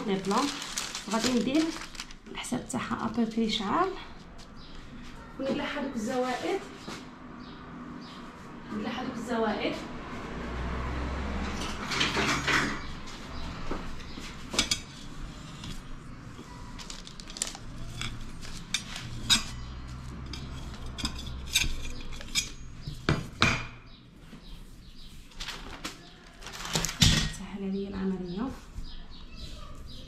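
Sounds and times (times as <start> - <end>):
baking paper rustling: 0.0 - 3.6, 13.2 - 21.0, 24.2 - 27.3.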